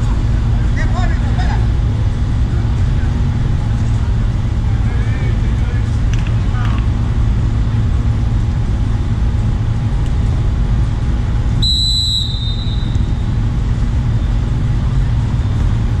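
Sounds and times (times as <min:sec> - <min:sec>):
referee's whistle blast: 0:11.6 - 0:13.1.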